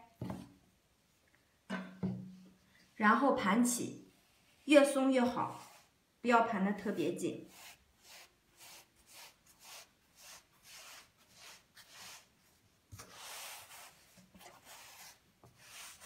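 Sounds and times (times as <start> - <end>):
hands rubbing dough on board: 7.0 - 12.4, 13.0 - 16.0.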